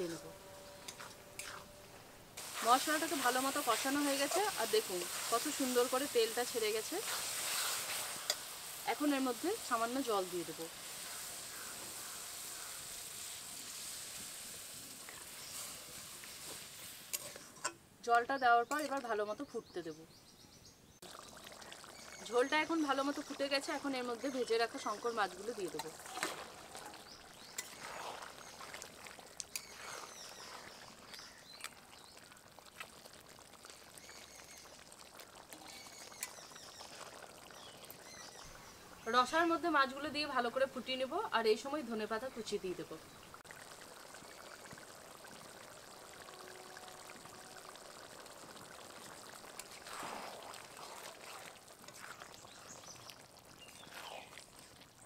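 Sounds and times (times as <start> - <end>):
faint bubbling of simmering gravy: 2.3 - 17.8, 20.9 - 55.0
birds chirping: 26.6 - 32.4, 35.6 - 39.7.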